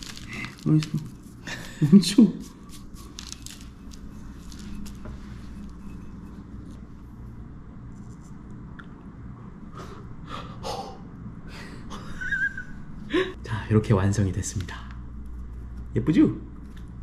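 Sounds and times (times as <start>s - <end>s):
gloved hands rustling soil: 0.0s - 5.8s
low room hum: 0.0s - 17.0s.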